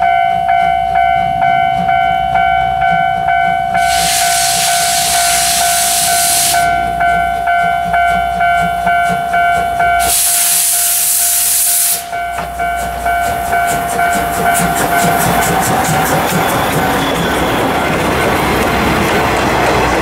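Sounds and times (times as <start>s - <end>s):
steady high tone: 0.0s - 19.4s
locomotive exhaust chuffs: 0.0s - 20.0s
loud hiss of steam: 3.8s - 6.9s, 10.0s - 12.2s.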